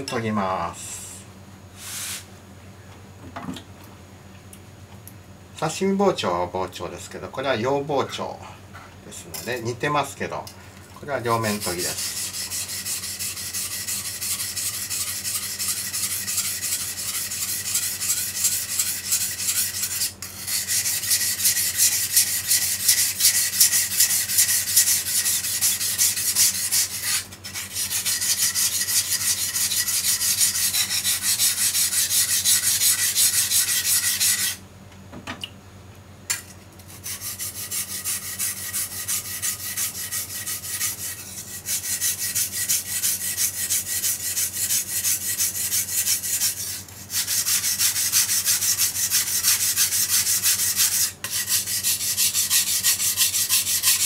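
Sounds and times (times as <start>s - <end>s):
knife grinding on whetstone: 11.4s - 34.6s, 36.3s - 54.0s.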